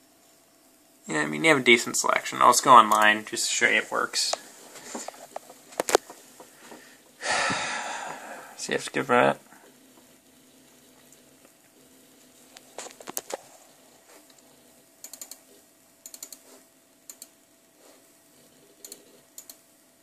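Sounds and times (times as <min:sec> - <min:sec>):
faint steady hum: 0:00.0 - 0:20.0
computer input clicks: 0:15.0 - 0:15.4, 0:16.0 - 0:16.4, 0:17.1 - 0:17.3, 0:18.8 - 0:19.6.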